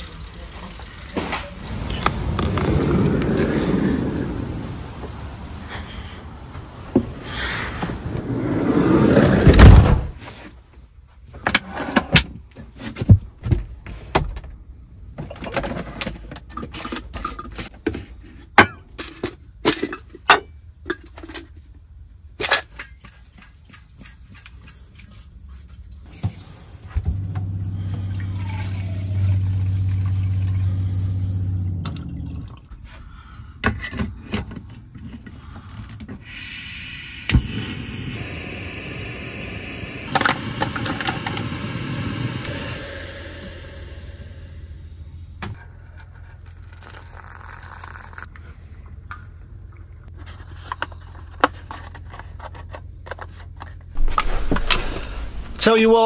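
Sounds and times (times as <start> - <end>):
sliding door thudding shut: 7.8 - 10.2, 54.0 - 55.7
steady low hum: 36.6 - 45.6
water filling a cup: 46.4 - 48.3.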